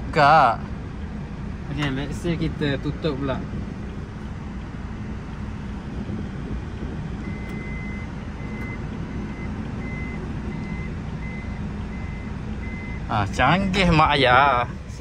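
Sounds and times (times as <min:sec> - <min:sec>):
high-pitched warning beeps: 0:07.2 - 0:13.1.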